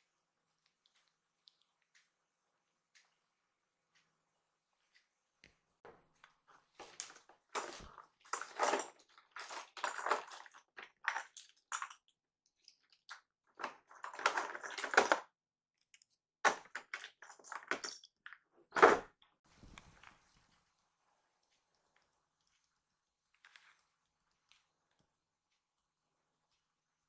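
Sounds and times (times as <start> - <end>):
rustling and crinkling: 5.9 - 15.3, 15.9 - 25.1.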